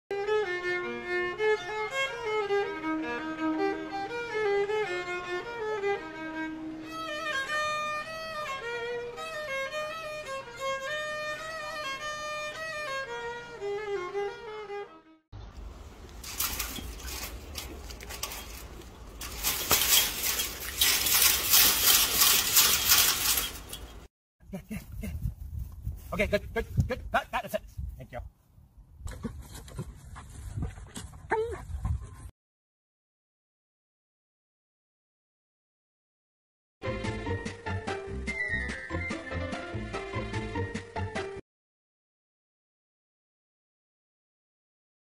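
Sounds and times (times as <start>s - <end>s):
solo violin slow melody: 0.1s - 15.2s.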